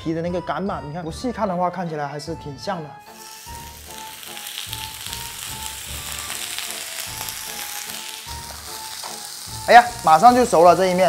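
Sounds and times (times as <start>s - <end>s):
faint background music: 0.0s - 11.0s
patty sizzling in oil: 3.0s - 11.0s.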